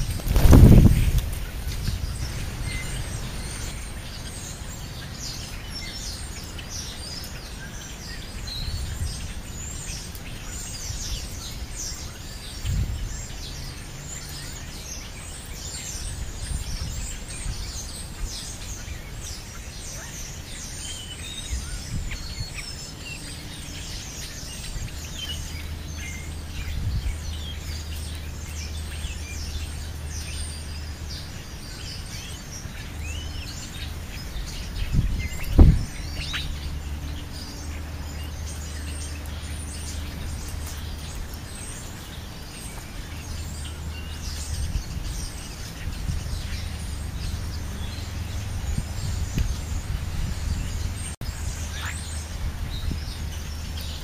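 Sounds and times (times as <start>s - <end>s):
birds chirping: 0.0s - 54.0s
low outdoor rumble: 15.7s - 54.0s.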